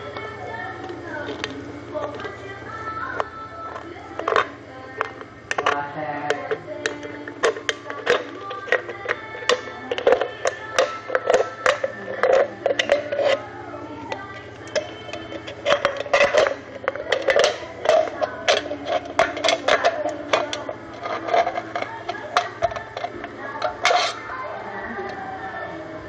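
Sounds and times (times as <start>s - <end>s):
scissors cutting metal can: 3.1s - 13.4s, 14.1s - 24.3s.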